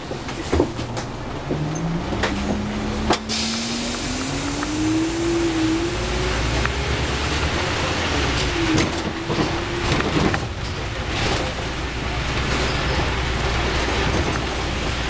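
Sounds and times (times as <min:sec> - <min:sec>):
rattles and knocks: 0:00.0 - 0:03.3, 0:08.3 - 0:15.0
bus engine and road rumble: 0:00.0 - 0:15.0
whine changing pitch: 0:01.0 - 0:09.8.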